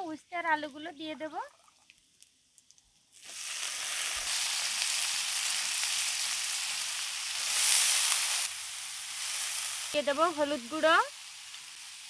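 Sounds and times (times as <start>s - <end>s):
vegetables sizzling in hot oil: 3.1s - 12.0s.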